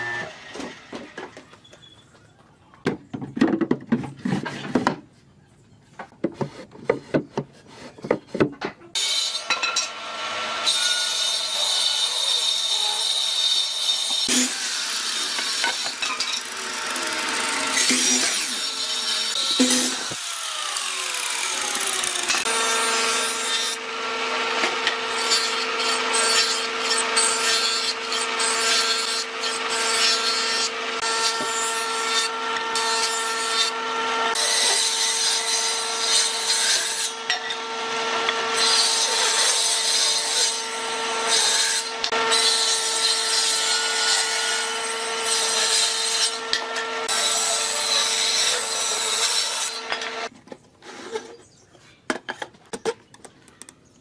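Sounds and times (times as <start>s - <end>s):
power tool motor running: 0.0s - 1.0s, 9.0s - 43.3s.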